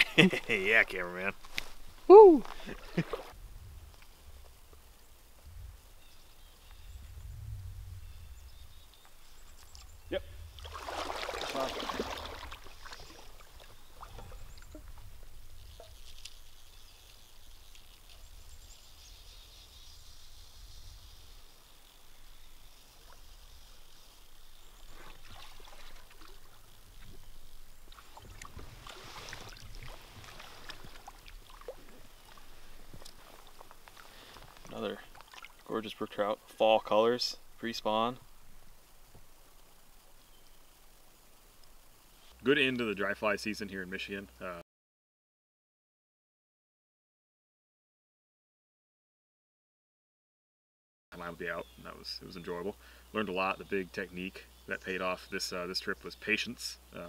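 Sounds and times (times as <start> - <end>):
river water splashing and trickling: 0.0 - 3.4, 9.0 - 19.1, 21.8 - 42.0
low rumble: 3.4 - 10.8
faint bird chirps: 5.8 - 10.6, 40.1 - 40.9
small splashes and drips: 10.5 - 18.4, 23.0 - 35.8.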